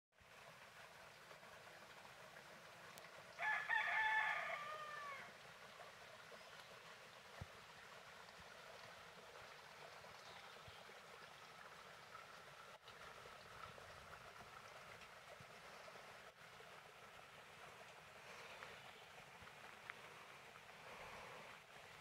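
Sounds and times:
faint outdoor background sound: 0.2s - 22.0s
rooster crowing: 3.4s - 5.3s.

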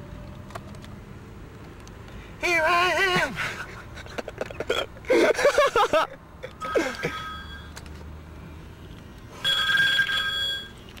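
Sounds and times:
high electronic ringing tone: 6.6s - 7.8s, 9.4s - 10.8s.

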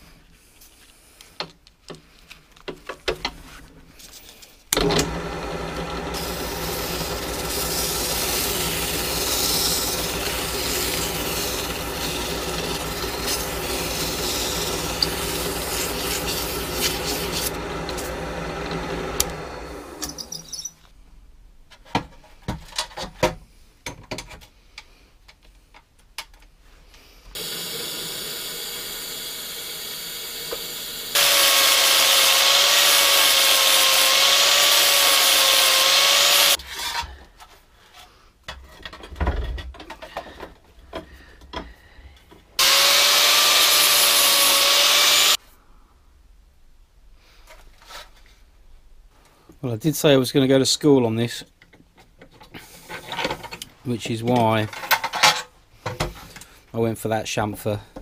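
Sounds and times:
angle grinder cutting steel: 4.8s - 20.7s, 27.4s - 37.0s, 42.6s - 45.4s
metal being handled: 20.0s - 20.9s.

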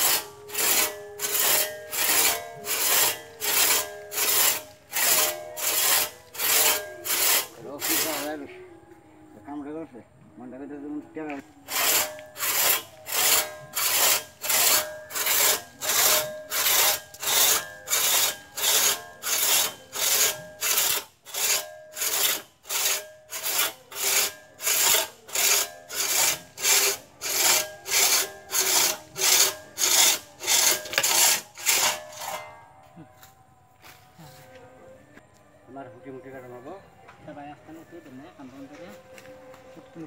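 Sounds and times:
hand saw rasping through wood: 0.0s - 8.4s, 11.7s - 32.5s.

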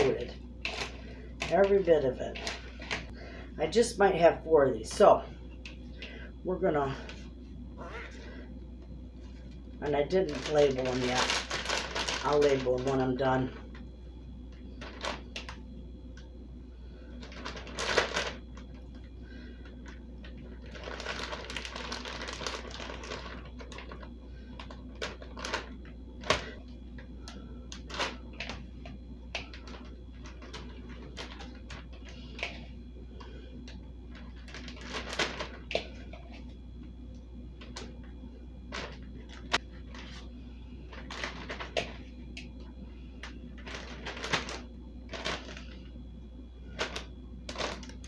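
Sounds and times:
plastic bags crinkling: 9.9s - 13.8s, 14.7s - 15.6s, 17.1s - 26.6s, 27.2s - 28.6s, 29.3s - 32.7s, 33.6s - 36.5s, 38.7s - 40.3s, 40.9s - 42.1s, 43.2s - 45.9s, 46.7s - 48.0s.

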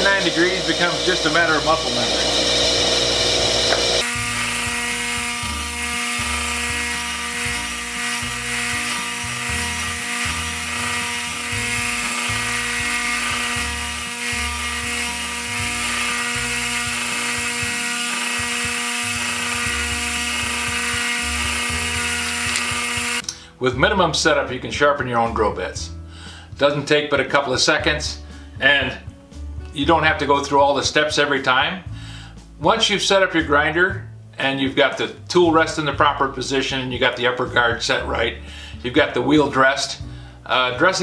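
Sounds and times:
bench grinder motor whine: 0.0s - 23.2s.

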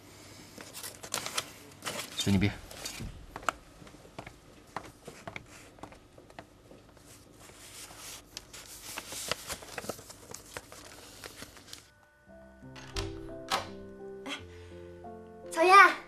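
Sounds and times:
paper rustling: 0.6s - 3.5s, 4.8s - 11.9s.

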